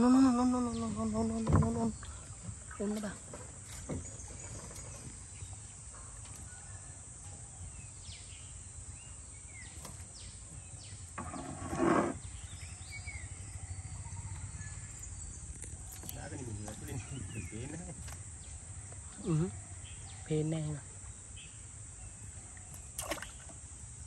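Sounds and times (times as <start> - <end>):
birds chirping: 0.0 - 23.6
water dripping and splashing: 22.7 - 23.6.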